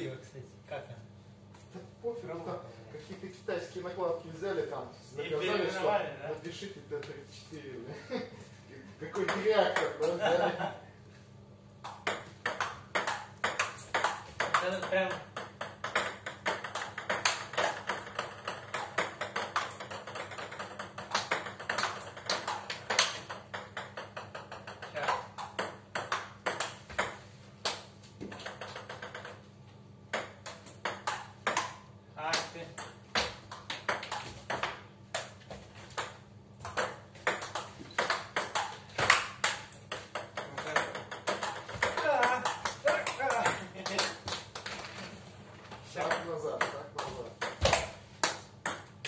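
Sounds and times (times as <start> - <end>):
table tennis ball knocking: 11.8 - 29.5, 30.1 - 45.0, 46.0 - 49.0.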